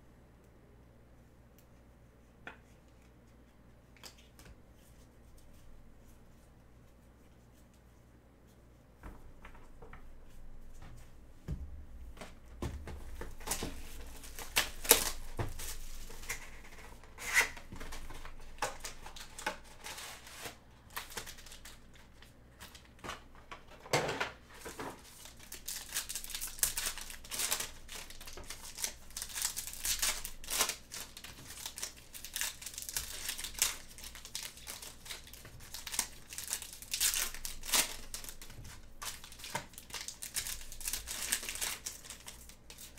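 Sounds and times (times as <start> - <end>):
taps and rustles: 9.0 - 16.8
wrappers crinkling: 13.0 - 23.0, 24.6 - 42.9.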